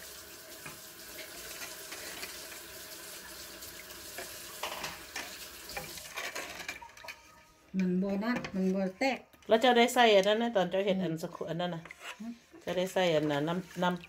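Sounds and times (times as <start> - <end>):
ladle scraping metal pot: 4.6 - 8.9, 11.1 - 14.0.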